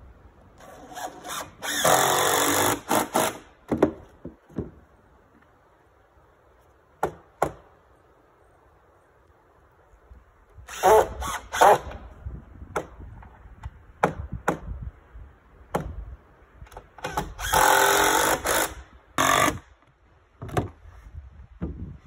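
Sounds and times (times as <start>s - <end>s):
cordless drill driving screws: 0.6s - 3.4s, 17.0s - 19.6s.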